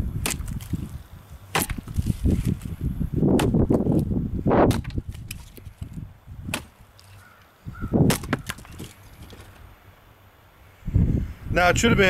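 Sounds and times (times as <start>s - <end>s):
machete chopping into log: 0.2s - 0.9s, 1.5s - 2.7s, 3.3s - 4.0s, 4.6s - 7.2s, 8.0s - 9.5s.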